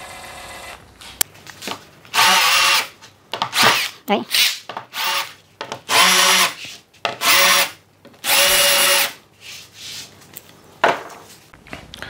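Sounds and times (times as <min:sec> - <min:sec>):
cordless drill running: 0:00.0 - 0:00.8, 0:02.2 - 0:02.9, 0:05.9 - 0:06.6, 0:07.2 - 0:09.2.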